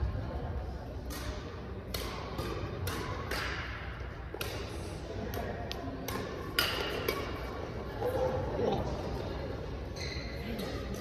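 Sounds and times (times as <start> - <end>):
rackets hitting shuttlecock: 0.9 - 8.4.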